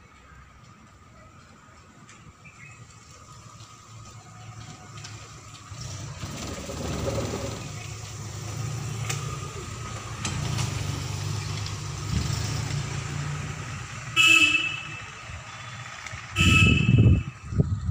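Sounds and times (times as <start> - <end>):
vehicle engine rumbling: 0.0 - 17.9
horn honking: 14.1 - 15.4, 16.3 - 17.4.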